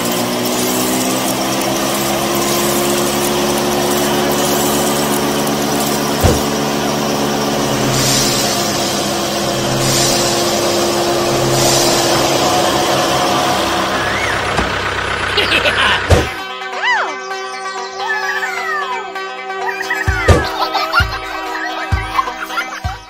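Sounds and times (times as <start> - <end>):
rattling hiss of wheat: 0.0 - 14.0.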